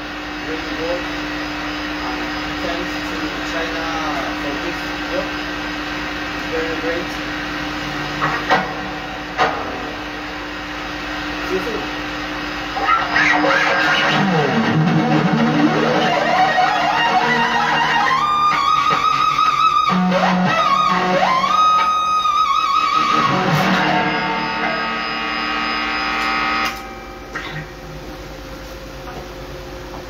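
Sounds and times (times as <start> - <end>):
amp buzz and hiss: 0.0 - 28.4
overdriven electric guitar: 12.7 - 27.7.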